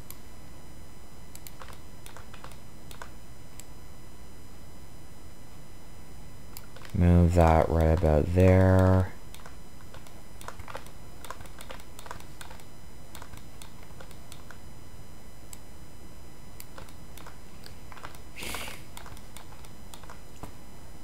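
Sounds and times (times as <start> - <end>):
steady background hum: 0.0 - 21.0
mouse clicks: 1.3 - 3.7
computer keyboard clicks: 1.4 - 3.1, 6.6 - 14.6, 16.6 - 18.2, 18.9 - 20.5.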